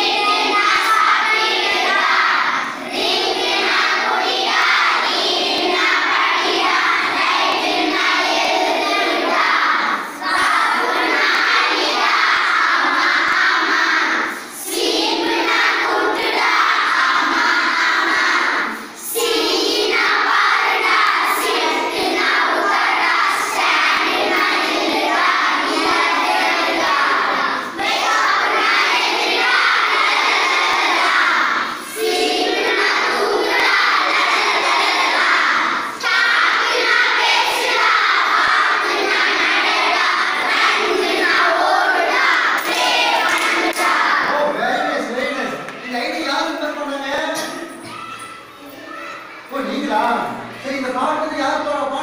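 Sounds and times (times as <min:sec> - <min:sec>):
children singing in unison: 0:00.0 - 0:45.0
children clapping: 0:42.2 - 0:44.2.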